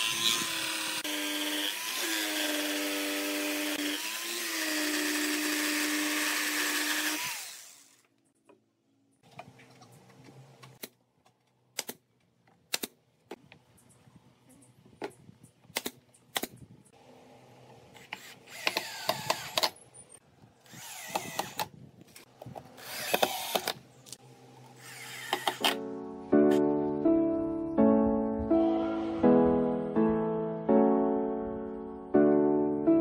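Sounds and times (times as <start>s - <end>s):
cordless drill driving screws: 0.0s - 8.0s, 18.0s - 19.8s, 20.6s - 21.7s, 22.7s - 23.8s, 24.8s - 25.8s.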